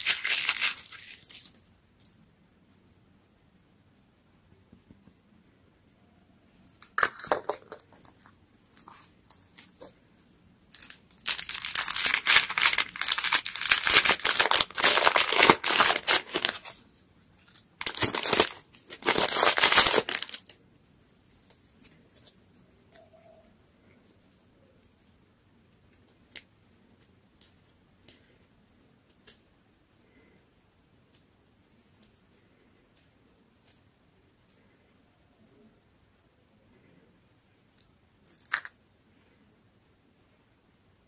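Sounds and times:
plastic packet crumpling and tearing: 0:00.0 - 0:01.6, 0:10.8 - 0:16.8, 0:17.4 - 0:20.6.

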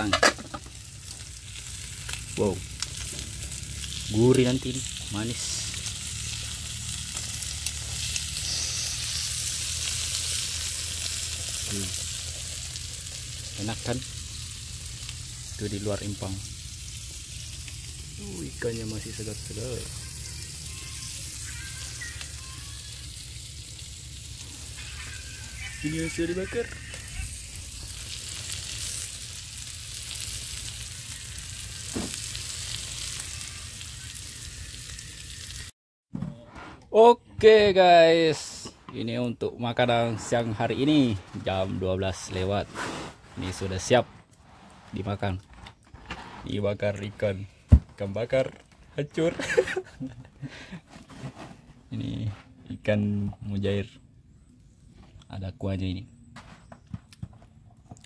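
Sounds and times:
fish sizzling on a grill: 0:00.0 - 0:35.7, 0:39.7 - 0:45.4, 0:48.0 - 0:50.8.

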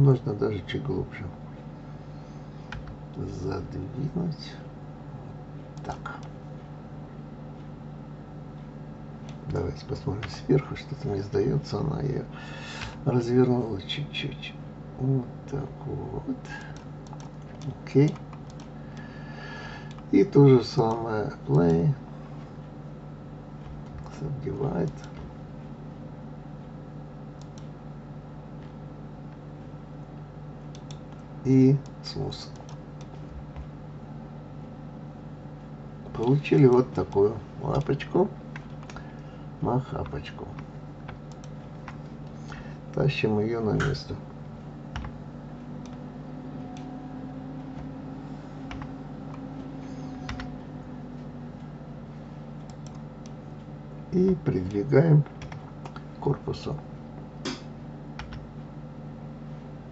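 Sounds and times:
electrical hum and hiss: 0:00.0 - 0:59.9
computer mouse clicks: 0:16.6 - 0:19.1, 0:19.9 - 0:20.1, 0:24.8 - 0:25.3, 0:27.4 - 0:27.7, 0:30.7 - 0:33.7, 0:36.6 - 0:39.2, 0:40.0 - 0:42.6, 0:52.6 - 0:53.4.

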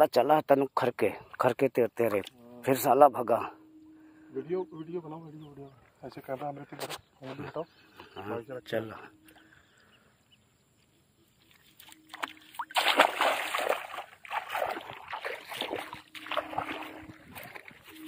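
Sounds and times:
water splashing: 0:11.3 - 0:18.0.

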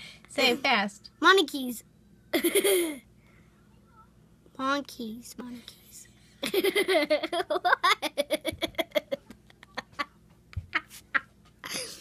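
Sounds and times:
girl giggling: 0:02.3 - 0:03.0, 0:06.4 - 0:12.0.

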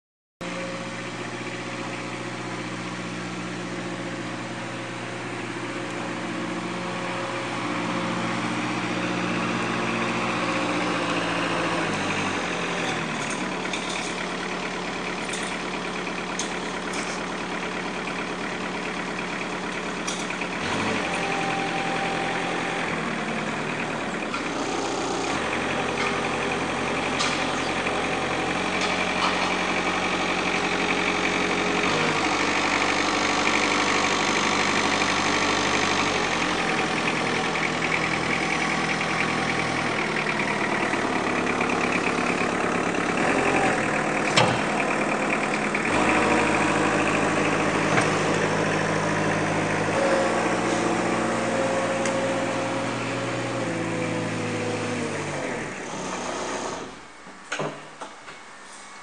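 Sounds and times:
diesel engine running: 0:00.4 - 0:57.6.

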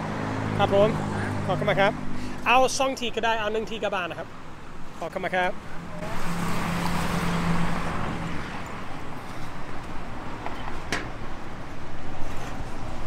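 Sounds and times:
car passing: 0:00.0 - 0:02.8, 0:05.6 - 0:13.0.

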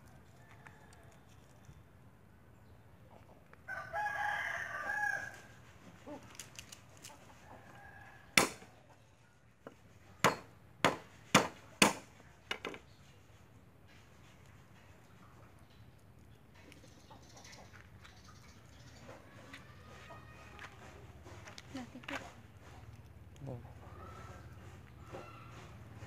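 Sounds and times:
rooster crowing: 0:03.7 - 0:05.5
cleaver whacking wooden board: 0:08.4 - 0:08.7, 0:10.2 - 0:12.1.

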